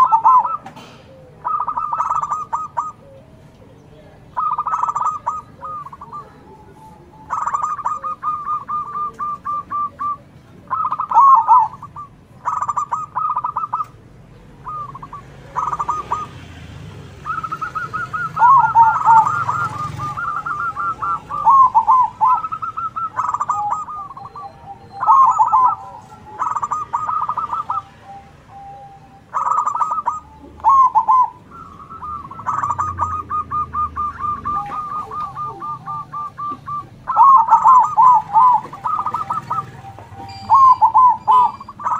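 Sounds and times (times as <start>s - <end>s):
doves cooing: 0.0s - 41.9s.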